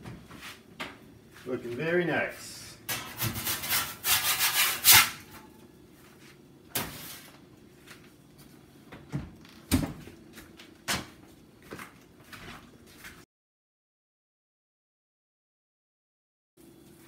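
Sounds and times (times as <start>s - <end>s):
metal pizza peel scraping stone: 3.0s - 5.5s.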